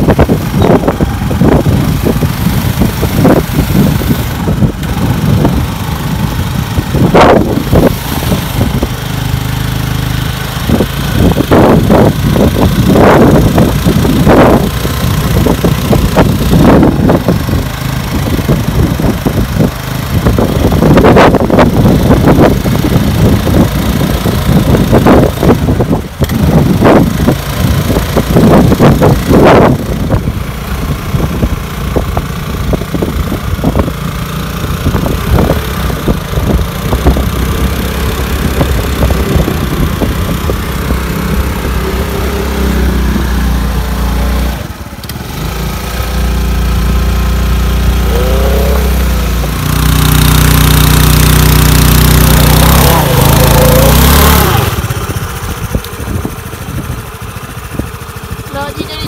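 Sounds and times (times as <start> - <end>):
scooter engine revving: 0.0 - 59.0.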